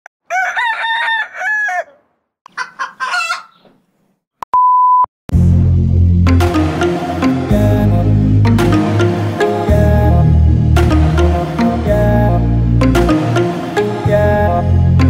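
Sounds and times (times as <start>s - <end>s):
rooster crowing: 0.2s - 3.6s
music with bass line: 5.3s - 15.0s.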